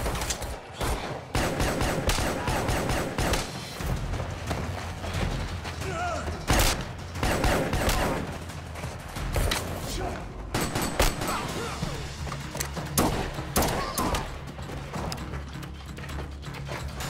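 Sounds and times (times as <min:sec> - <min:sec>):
gunshots: 0:00.0 - 0:04.1, 0:06.4 - 0:08.6, 0:09.3 - 0:12.1, 0:12.9 - 0:14.4.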